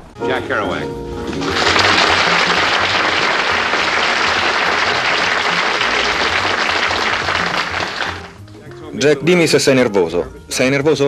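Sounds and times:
audience applauding: 0:01.2 - 0:08.5.

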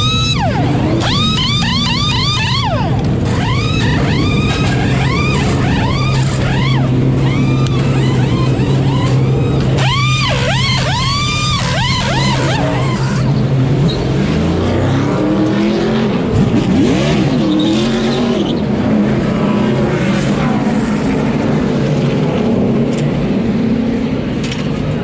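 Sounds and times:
pneumatic impact wrench whining: 0:00.0 - 0:13.4
race car engines: 0:00.0 - 0:25.0.

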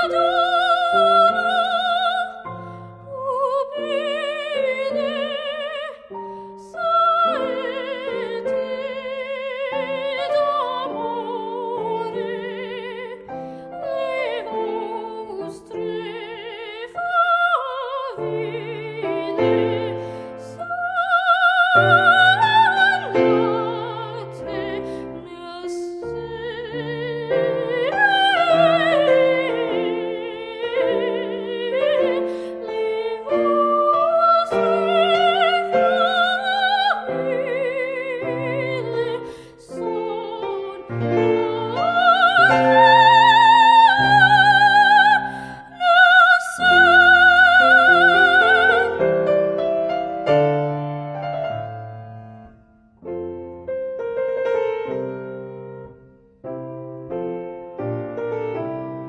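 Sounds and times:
woman singing operatically: 0:00.0 - 0:49.4
piano accompaniment: 0:00.0 - 0:59.0.

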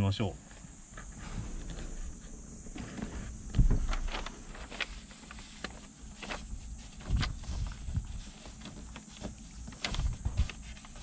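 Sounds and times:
soft handling thumps: 0:00.5 - 0:04.9
paper rustling and crackling: 0:02.7 - 0:11.0.

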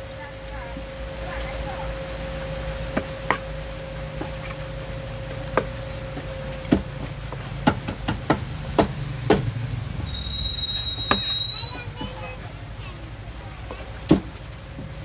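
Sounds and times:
knife chopping on wooden block: 0:06.7 - 0:09.5.

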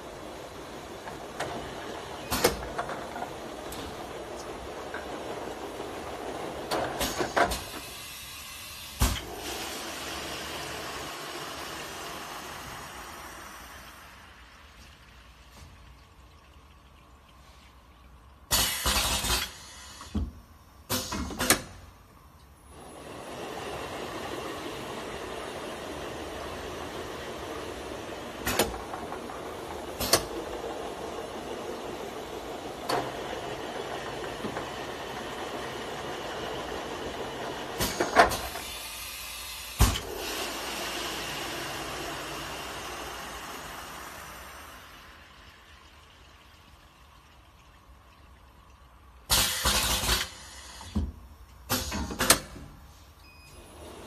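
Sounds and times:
bottle filling machine running: 0:00.0 - 0:54.0
conveyor mechanical hum: 0:00.0 - 0:54.0.

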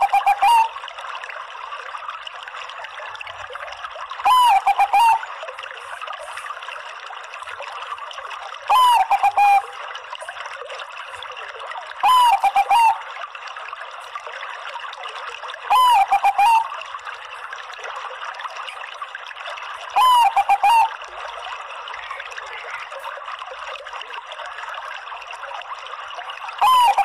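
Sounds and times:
dove cooing: 0:00.0 - 0:00.7, 0:04.3 - 0:05.2, 0:08.7 - 0:09.6, 0:12.0 - 0:13.0, 0:15.7 - 0:16.7, 0:20.0 - 0:21.0, 0:26.6 - 0:27.0.

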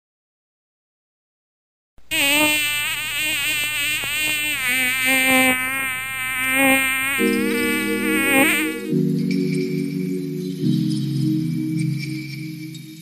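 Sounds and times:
buzzy synthesizer lead: 0:02.1 - 0:09.0
sustained synth chords: 0:07.2 - 0:13.0.

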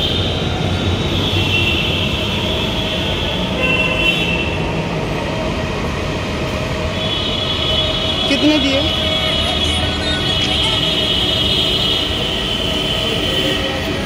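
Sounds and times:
road traffic noise: 0:00.0 - 0:14.0
vehicle horns: 0:01.0 - 0:04.7, 0:06.9 - 0:14.0.

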